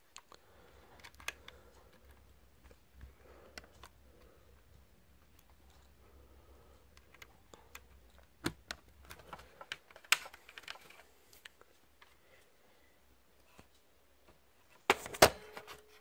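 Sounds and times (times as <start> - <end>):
plastic laptop parts clicking: 0.1 - 5.8, 6.9 - 12.1.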